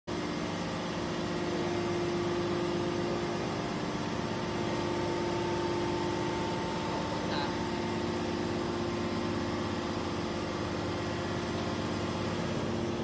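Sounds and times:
hydraulic baler humming: 0.1 - 13.0.

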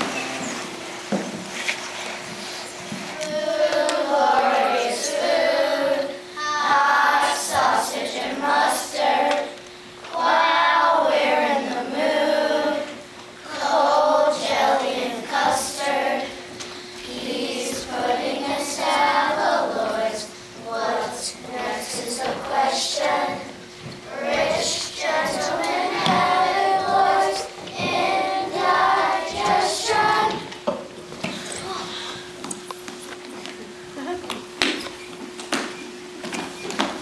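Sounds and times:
children's chorus singing: 0.0 - 1.3, 3.1 - 30.7
faint steady hum: 0.0 - 37.0.

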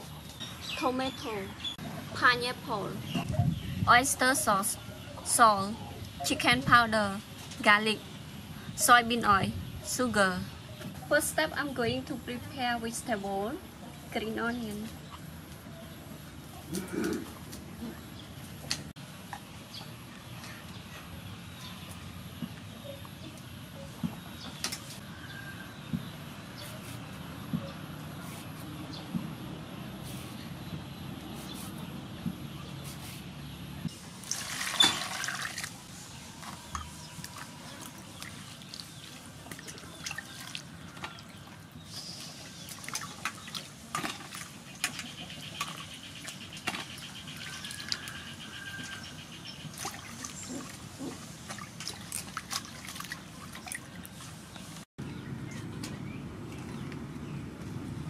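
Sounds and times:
water sloshing in a metal bowl: 34.1 - 41.7, 42.4 - 54.2.

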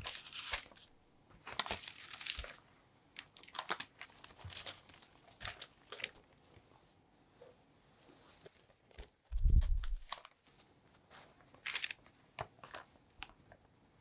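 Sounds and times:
baking paper rustling and crinkling: 0.0 - 6.6, 9.3 - 12.9.

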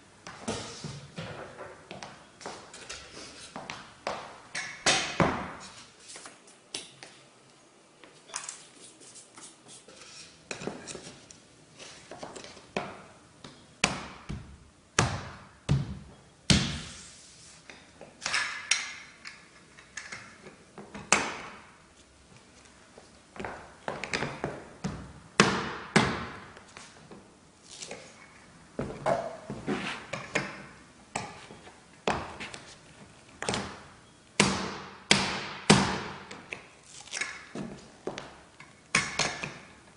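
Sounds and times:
floorboard scraping: 29.5 - 30.1.

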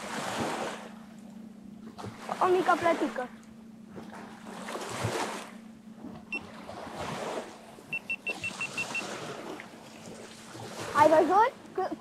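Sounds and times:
river waves washing on bank: 0.0 - 1.0, 6.3 - 12.0
short high beeps: 7.9 - 9.1.

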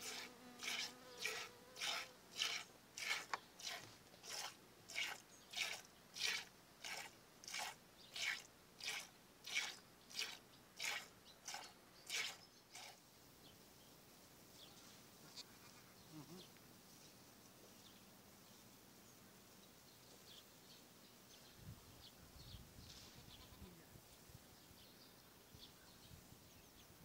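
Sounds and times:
milk squirting into container: 0.0 - 13.0.

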